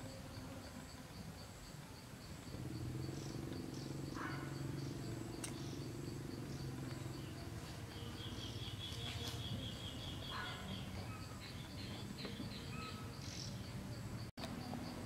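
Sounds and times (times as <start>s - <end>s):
insects chirping: 0.0s - 15.0s
bird calling: 2.5s - 13.8s.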